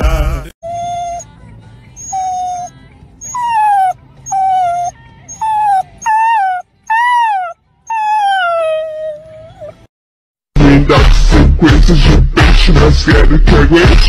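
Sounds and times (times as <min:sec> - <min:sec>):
puppy whining: 0:00.6 - 0:09.9.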